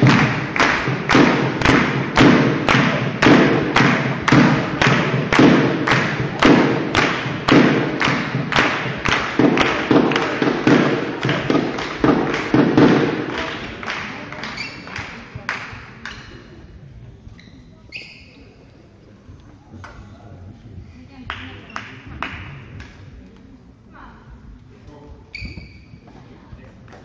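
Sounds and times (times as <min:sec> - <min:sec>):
spectators beating a rhythm: 0:00.0 - 0:16.5.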